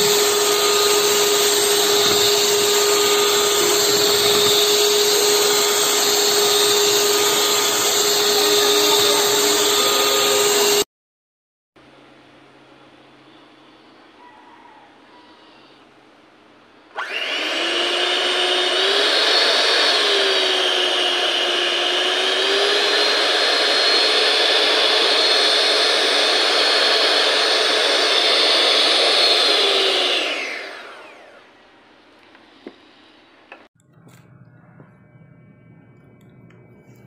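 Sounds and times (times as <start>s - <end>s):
electric hand mixer whining: 0.0s - 10.9s, 16.9s - 35.0s.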